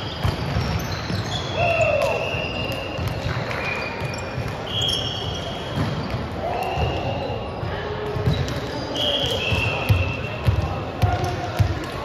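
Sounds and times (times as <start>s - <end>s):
sneakers squeaking on hardwood: 0.0s - 1.9s, 3.7s - 6.3s.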